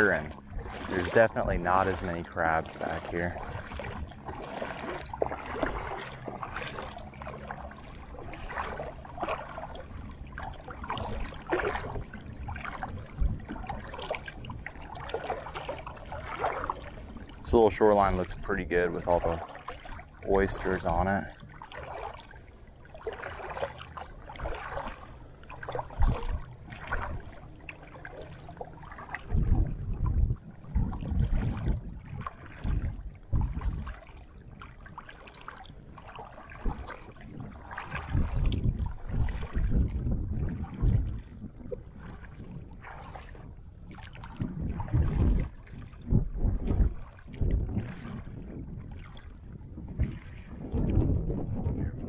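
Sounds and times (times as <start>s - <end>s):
water sloshing around wading legs: 0.0s - 51.4s
wind buffeting microphone: 0.0s - 52.0s.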